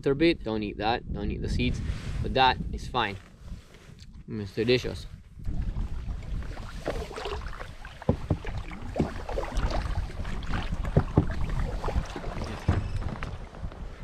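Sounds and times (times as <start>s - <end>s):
paddles splashing in water: 5.4s - 14.0s
water slapping against a hull: 5.4s - 14.0s
sharp knocks: 8.0s - 9.2s, 10.8s - 11.5s.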